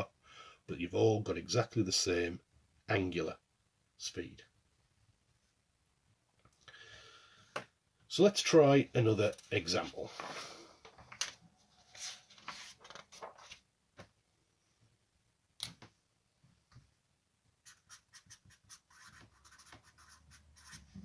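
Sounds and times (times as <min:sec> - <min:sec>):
paper sheets handled: 0:09.3 - 0:13.7
marker scratching across paper: 0:17.6 - 0:21.0.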